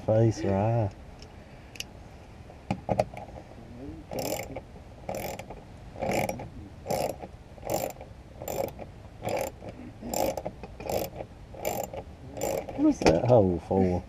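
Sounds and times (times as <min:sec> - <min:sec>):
socket ratchet clicking: 0:04.1 - 0:12.8.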